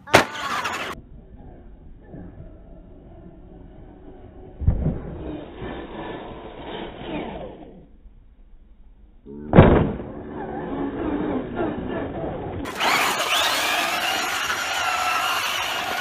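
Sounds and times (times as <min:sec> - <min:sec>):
rc truck landing thud: 0:00.0 - 0:01.0, 0:09.5 - 0:16.0
electric motor whining: 0:10.2 - 0:16.0.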